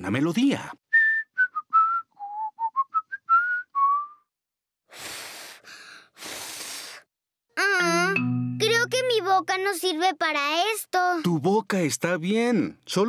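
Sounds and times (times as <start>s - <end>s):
person whistling a melody: 0.9s - 4.3s
breathy puffs of air: 4.9s - 7.1s.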